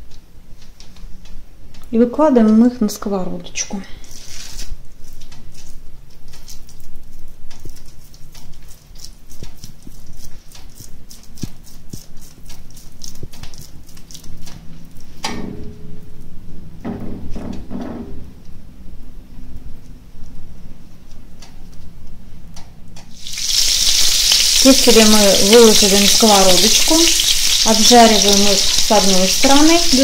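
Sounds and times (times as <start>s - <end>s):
hands patting wet meat: 5.0s - 14.6s.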